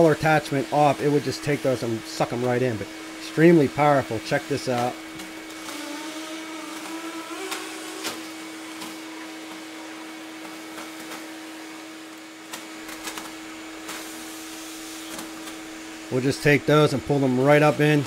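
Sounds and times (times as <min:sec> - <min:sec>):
shop vacuum motor hum: 0:00.0 - 0:18.0
vacuum sucking dry leaves: 0:00.0 - 0:18.0.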